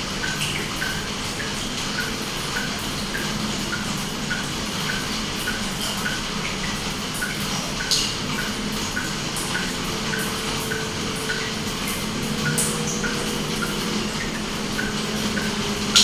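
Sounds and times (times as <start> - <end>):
aquarium water bubbling: 0.0 - 16.0
small water splashes: 0.0 - 16.0
steady hum: 0.0 - 16.0.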